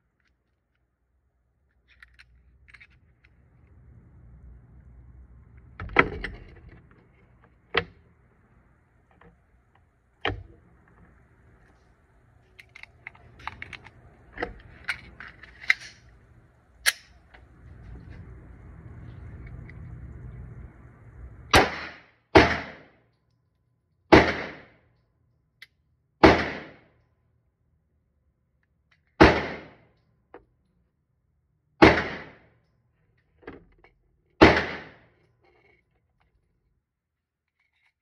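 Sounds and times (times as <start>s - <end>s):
pistol gunshots indoors: 21.5s - 22.9s, 24.1s - 24.8s, 26.2s - 26.9s, 29.2s - 29.8s, 31.8s - 32.4s, 34.4s - 35.0s.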